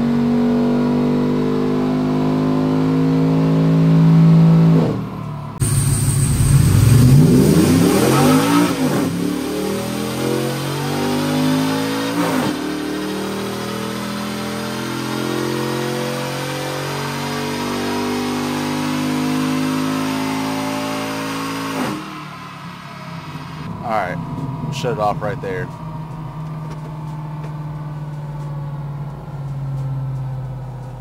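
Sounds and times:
engine running hard on dyno: 0:05.6 - 0:30.1.

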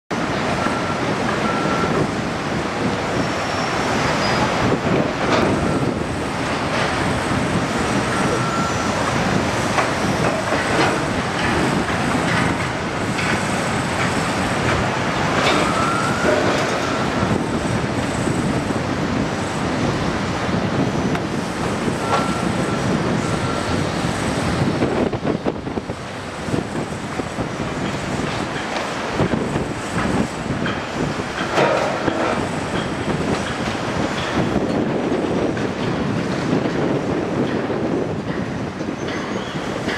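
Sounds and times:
skid steer engine running: 0:06.6 - 0:19.9, 0:26.1 - 0:36.8
metal clanking and scraping: 0:31.4 - 0:33.6.

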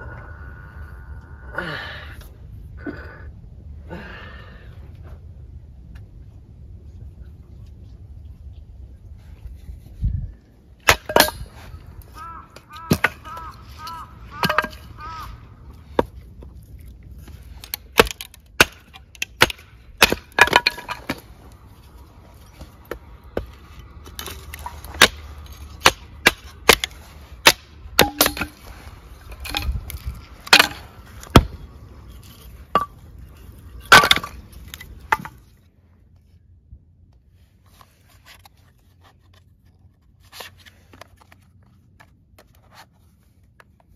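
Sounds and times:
wood splitting chops: 0:10.8 - 0:15.2, 0:17.3 - 0:22.0, 0:22.6 - 0:35.4.

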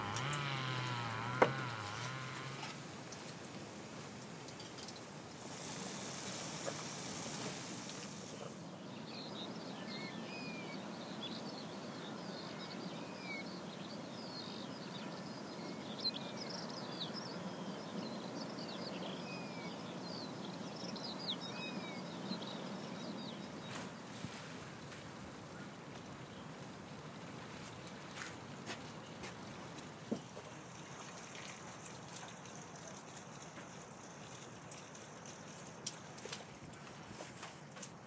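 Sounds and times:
outdoor background hiss: 0:00.0 - 0:38.0
small songbirds chirping: 0:04.0 - 0:38.0.

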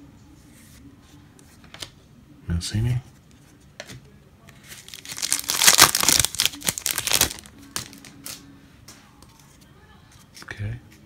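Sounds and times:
foil wrapper crinkling and tearing: 0:04.7 - 0:08.4.

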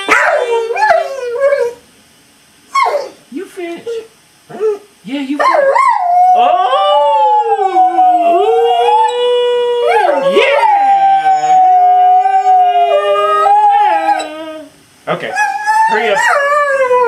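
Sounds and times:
dog howling: 0:00.0 - 0:01.8, 0:05.4 - 0:17.0.

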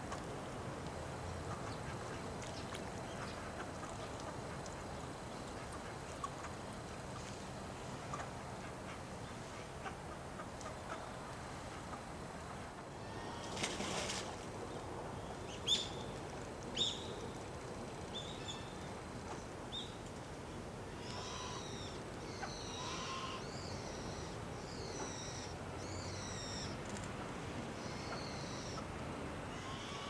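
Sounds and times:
low background hiss: 0:00.0 - 0:30.0
birds calling: 0:21.0 - 0:26.8, 0:27.8 - 0:28.9.

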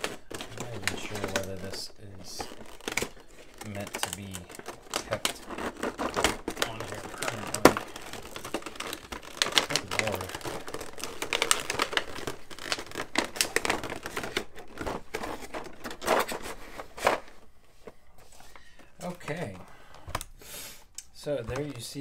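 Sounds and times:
plastic tray crackling and clicking: 0:00.0 - 0:17.3, 0:21.0 - 0:22.0
plastic snaps: 0:20.1 - 0:21.8.

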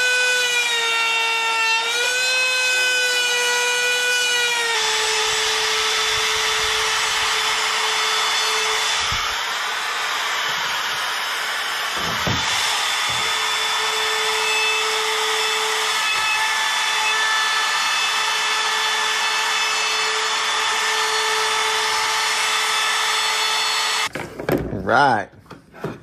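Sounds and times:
router whining and cutting wood: 0:00.0 - 0:24.1
board knocking: 0:12.0 - 0:13.5.

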